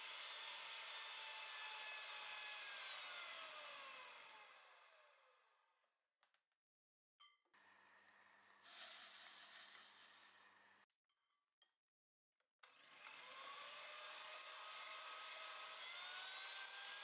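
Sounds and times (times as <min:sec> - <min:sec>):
electric hand mixer whirring: 0:00.0 - 0:05.2, 0:12.7 - 0:17.0.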